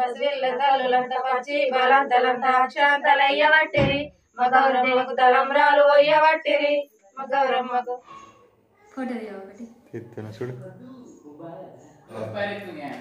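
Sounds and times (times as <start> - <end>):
women singing devotional song: 0.0 - 8.4
low thump: 3.8 - 4.2.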